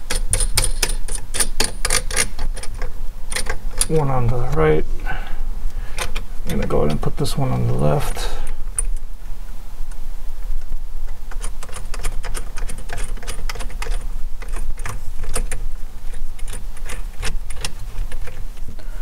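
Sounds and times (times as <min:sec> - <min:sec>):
metal nuts clicking on bolts: 0:00.0 - 0:04.0, 0:11.3 - 0:18.4.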